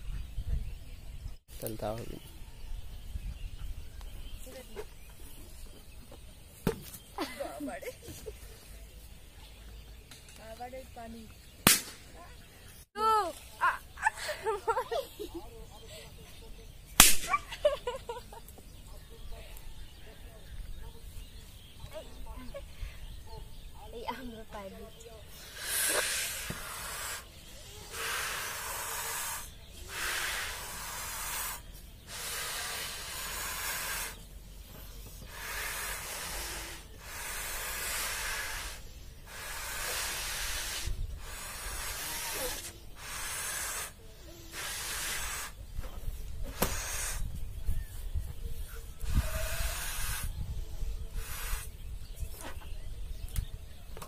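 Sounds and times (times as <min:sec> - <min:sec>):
airy puffs into balloons: 0:25.3 - 0:34.2, 0:35.2 - 0:45.6, 0:46.4 - 0:47.4, 0:49.0 - 0:51.8.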